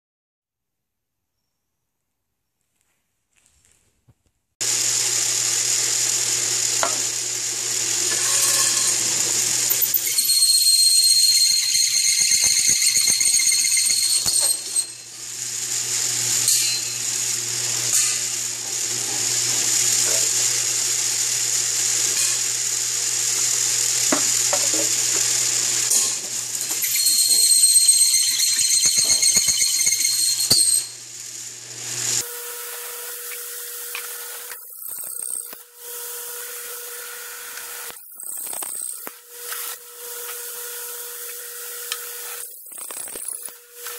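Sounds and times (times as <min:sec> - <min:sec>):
drill motor humming: 0:04.6 - 0:43.9
hole saw squealing on metal: 0:08.1 - 0:15.3, 0:25.9 - 0:31.0.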